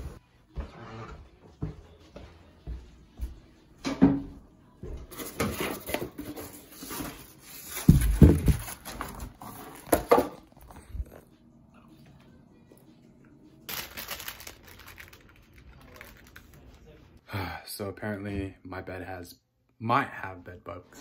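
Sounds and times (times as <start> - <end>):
cardboard box rustling: 6.8 - 10.1.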